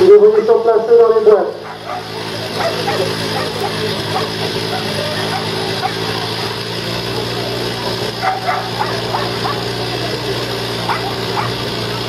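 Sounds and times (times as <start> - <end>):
steady low hum: 0.8 - 12.0
dogs barking and yelping: 1.6 - 6.7, 8.1 - 9.8, 10.8 - 12.0.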